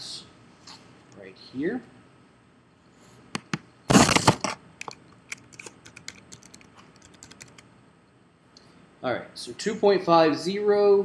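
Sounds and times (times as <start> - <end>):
rustling burst: 3.9 - 7.6.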